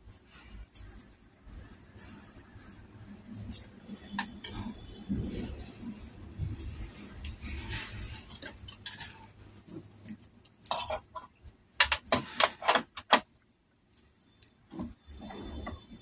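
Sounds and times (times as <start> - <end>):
metal parts clicking and clacking: 0.5 - 16.0.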